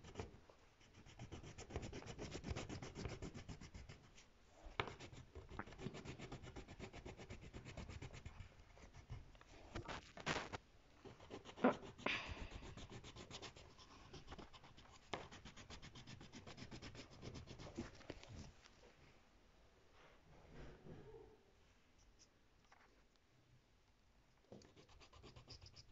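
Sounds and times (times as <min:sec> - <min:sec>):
pencil scratching on paper: 0:00.0 - 0:04.2, 0:04.8 - 0:09.3, 0:11.1 - 0:18.5, 0:24.6 - 0:25.9.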